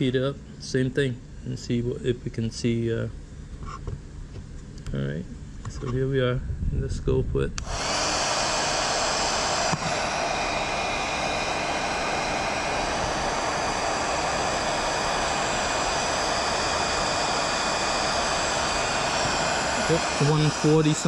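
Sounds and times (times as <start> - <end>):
faint high whine: 7.5 - 21.0
heat gun blowing air: 7.6 - 21.0.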